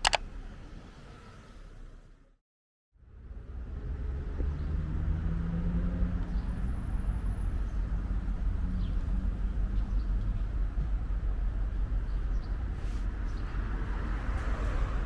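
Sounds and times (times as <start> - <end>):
traffic rumble: 3.0 - 15.0.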